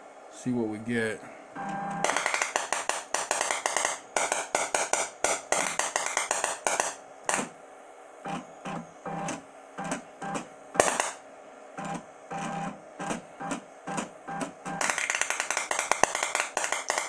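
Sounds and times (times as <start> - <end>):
loud spark crack: 2.0 - 7.6, 10.8 - 11.2, 14.8 - 17.0
electrical sparks snapping under water: 14.8 - 17.0.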